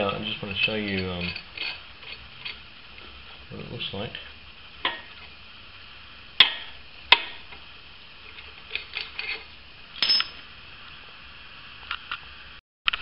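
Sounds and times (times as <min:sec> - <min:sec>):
metal tool clicks and knocks: 0:10.0 - 0:10.4.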